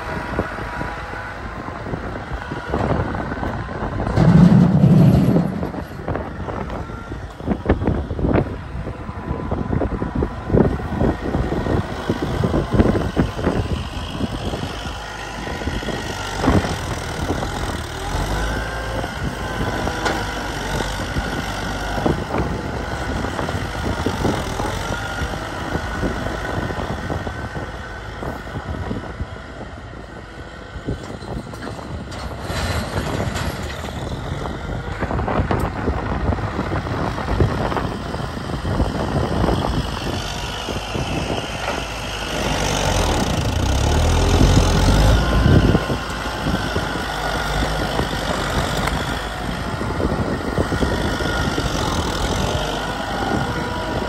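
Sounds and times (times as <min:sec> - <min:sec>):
tractor diesel engine running: 0:00.0 - 0:54.0
knocks and clatter: 0:04.0 - 0:06.0.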